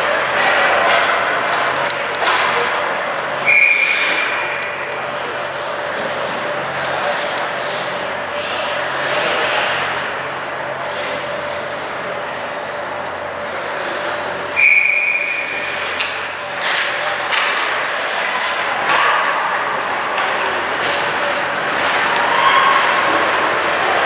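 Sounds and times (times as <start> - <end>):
ice arena noise: 0.0 - 24.0
referee's whistle blast: 3.4 - 4.1, 14.6 - 15.4.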